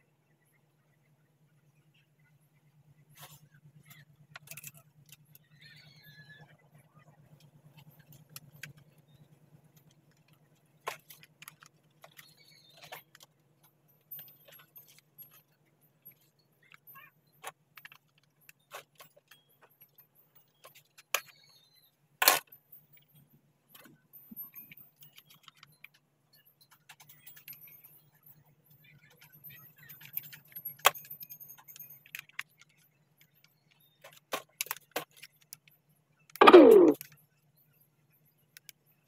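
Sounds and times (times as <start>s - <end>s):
plastic and metal parts clicking: 9.8s - 13.3s, 22.2s - 22.6s, 30.0s - 35.7s, 36.4s - 37.1s.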